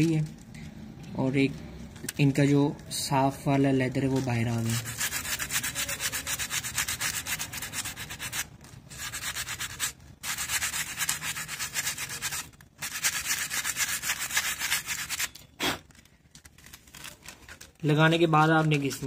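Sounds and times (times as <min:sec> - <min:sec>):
sandpaper rasping on brake linings: 0:04.6 - 0:15.3.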